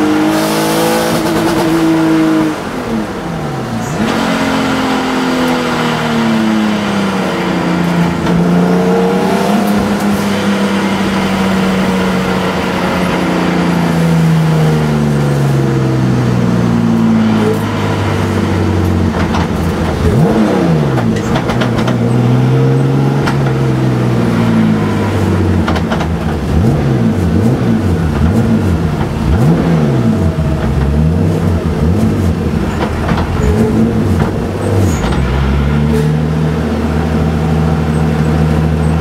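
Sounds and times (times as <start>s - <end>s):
race car engine revving: 0.0s - 39.0s
engine exhaust cracks: 18.8s - 22.2s.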